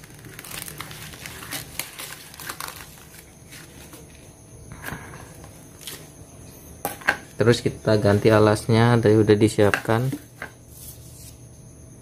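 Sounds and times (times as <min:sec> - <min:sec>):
paper crumpling: 0:00.0 - 0:04.1.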